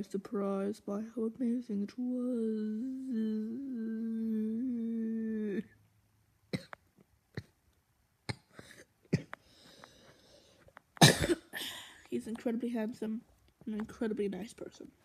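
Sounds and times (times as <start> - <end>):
boy holding a vocal note: 2.0 - 5.7.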